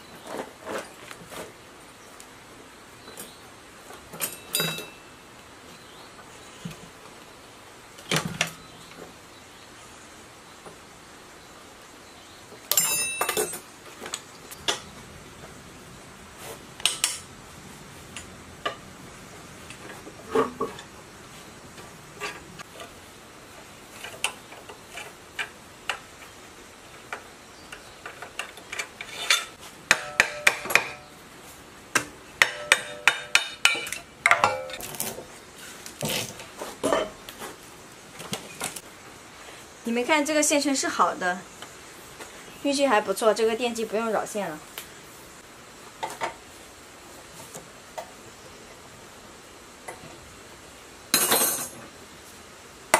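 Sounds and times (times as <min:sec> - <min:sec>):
metal tools clinking: 0:04.2 - 0:05.1, 0:12.7 - 0:13.7, 0:51.2 - 0:51.8.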